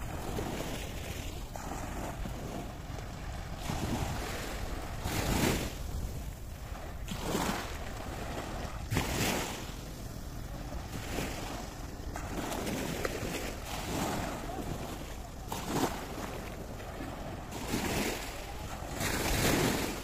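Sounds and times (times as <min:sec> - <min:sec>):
small waves washing on sand: 0:00.0 - 0:20.0
wind rumble on microphone: 0:00.0 - 0:20.0.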